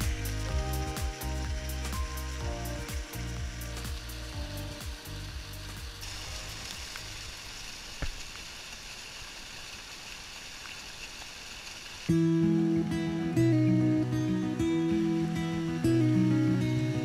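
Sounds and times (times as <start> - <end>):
water splashing over rocks: 5.7 - 12.1.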